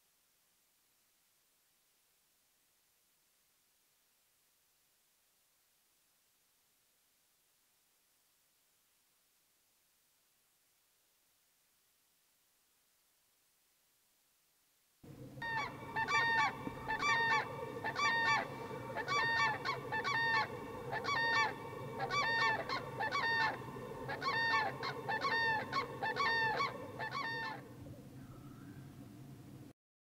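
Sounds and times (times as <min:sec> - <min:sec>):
grouse bubbling chorus: 0:15.1 - 0:28.5
large birds honking: 0:15.1 - 0:28.8.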